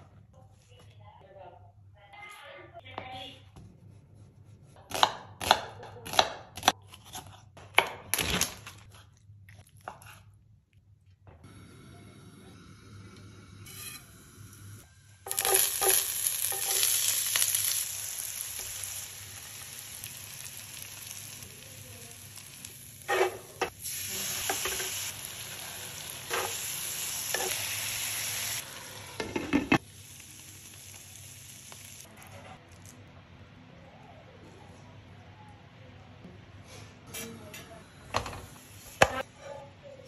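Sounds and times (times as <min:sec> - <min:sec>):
food sizzling in hot oil: 0:14.6 - 0:32.1.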